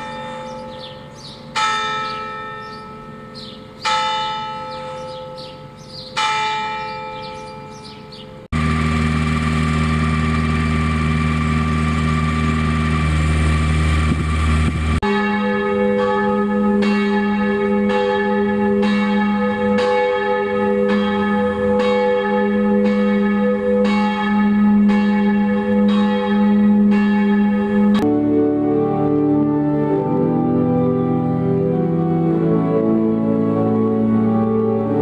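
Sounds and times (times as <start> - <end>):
church bells ringing: 0.0 - 35.0
tractor diesel engine running: 8.5 - 15.0.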